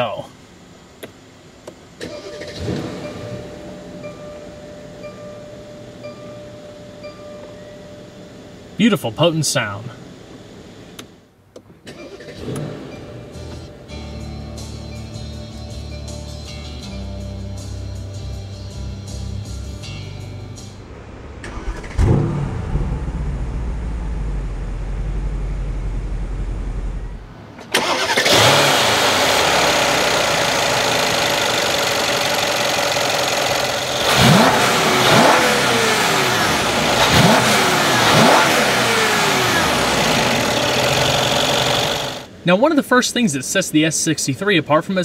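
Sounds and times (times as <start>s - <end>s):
car engine starting: 1.9s - 5.1s, 10.9s - 14.1s, 19.2s - 42.4s
engine revving: 2.4s - 3.5s, 20.9s - 42.3s
car engine idling: 20.1s - 42.4s.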